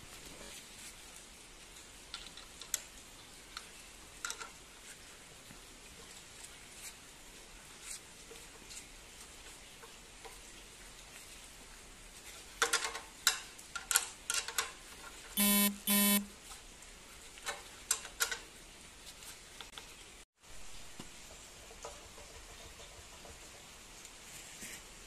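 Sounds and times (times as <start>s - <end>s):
short buzzing beeps: 15.4s - 16.3s.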